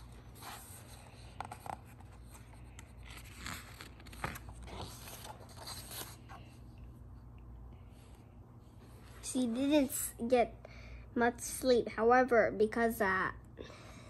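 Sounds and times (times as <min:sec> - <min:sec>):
paper pages turning and rustling: 0:00.0 - 0:06.5.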